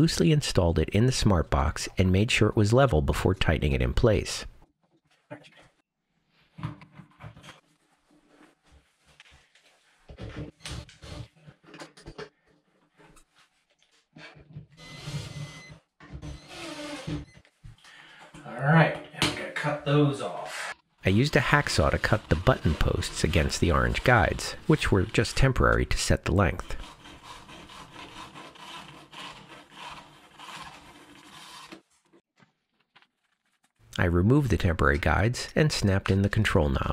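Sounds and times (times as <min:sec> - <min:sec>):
hacksaw rasping strokes: 0:21.3 - 0:31.8.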